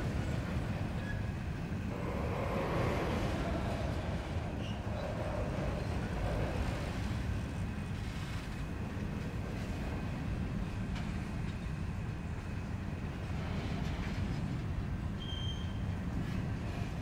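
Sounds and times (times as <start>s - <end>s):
train wheels rumbling on rails: 0.0s - 17.0s
short high squeal: 15.2s - 15.8s.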